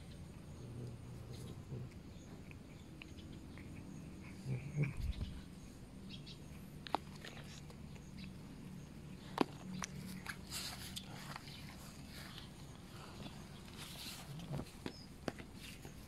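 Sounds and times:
cat chewing with crunching: 0.0s - 16.0s
grass and leaves rustling: 9.3s - 16.0s.

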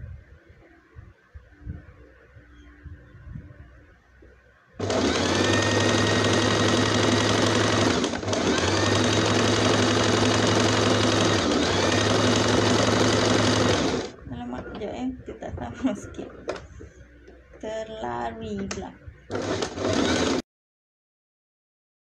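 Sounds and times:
electric sewing machine stitching: 4.8s - 14.1s, 19.3s - 20.4s.

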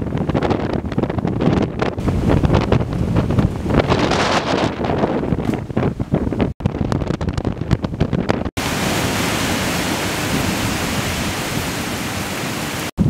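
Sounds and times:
wind buffeting microphone: 0.0s - 13.0s
heavy rain hiss: 8.6s - 13.0s.

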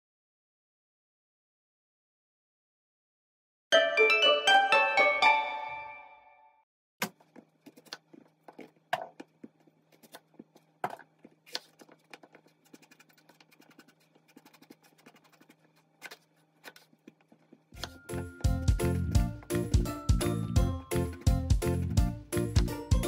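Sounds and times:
knife cutting on a cutting board: 7.6s - 18.0s.

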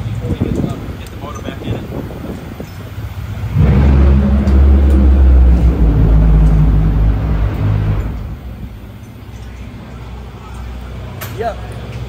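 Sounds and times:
loud engine droning: 3.1s - 10.5s.

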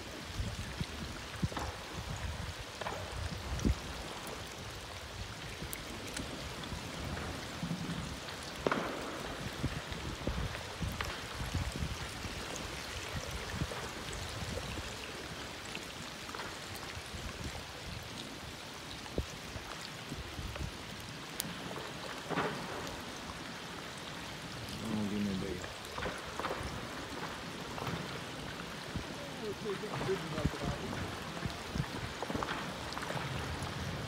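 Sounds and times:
glacier ice cracking: 0.2s - 17.6s, 19.1s - 34.0s.

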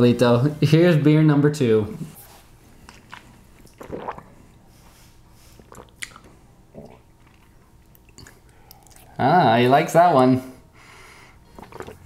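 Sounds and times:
wet mouth sounds: 2.8s - 4.4s, 5.5s - 9.2s, 11.5s - 12.0s
person sipping and swallowing: 2.9s - 4.6s, 5.5s - 9.2s, 11.5s - 12.0s.

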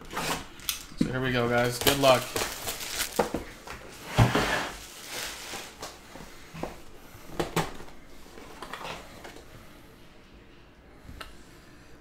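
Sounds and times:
cardboard rustling: 1.5s - 6.8s.

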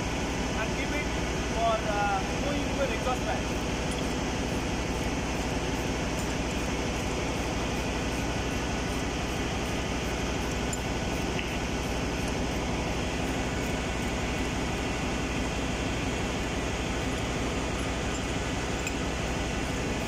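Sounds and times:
engine room machinery drone: 0.0s - 20.0s.

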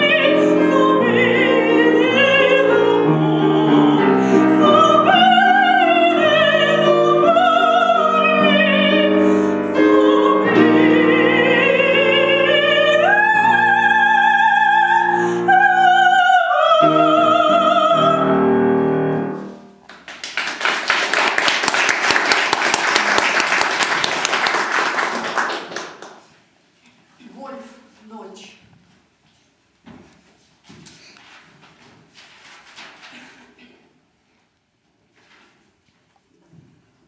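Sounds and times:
woman singing operatically: 0.0s - 18.8s
grand piano: 0.0s - 26.5s
audience applauding: 19.8s - 26.3s.

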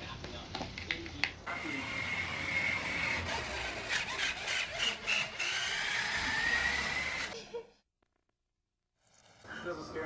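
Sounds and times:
toy electric motor whining: 1.5s - 7.4s.

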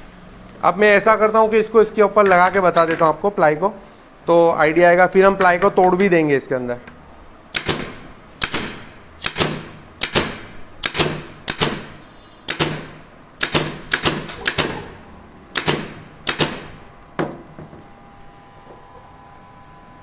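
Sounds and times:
pneumatic nailer firing: 7.5s - 17.4s.

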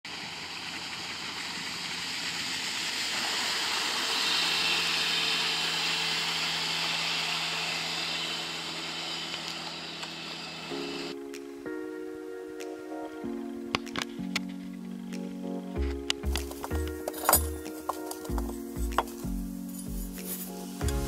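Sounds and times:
motorboat engine hum: 0.1s - 11.1s.

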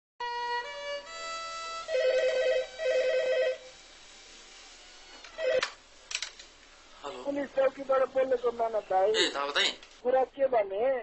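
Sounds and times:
held musical notes: 0.2s - 5.8s
telephone ringing: 1.9s - 3.7s, 5.3s - 5.8s.

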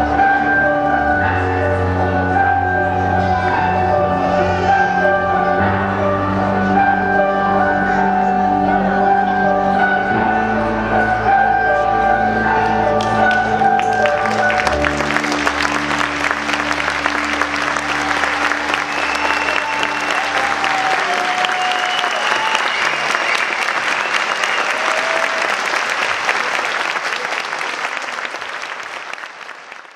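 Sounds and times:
music: 0.0s - 24.2s
audience applauding: 13.0s - 29.9s.

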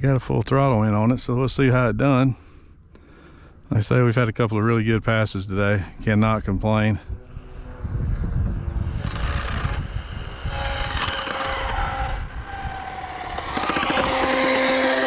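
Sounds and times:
electric motor whine: 7.0s - 15.0s.

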